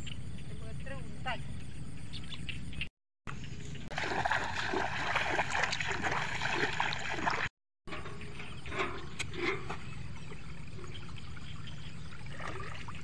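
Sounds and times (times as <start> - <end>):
water splashing around wading legs: 3.9 - 8.0, 10.2 - 13.0.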